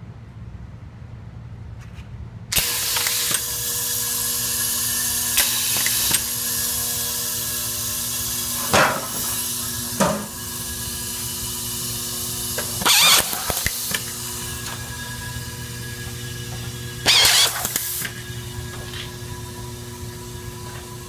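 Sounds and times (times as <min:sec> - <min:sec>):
bowl feeder humming: 0:04.2 - 0:21.0
screws rattling up track: 0:12.5 - 0:15.0, 0:16.4 - 0:18.3.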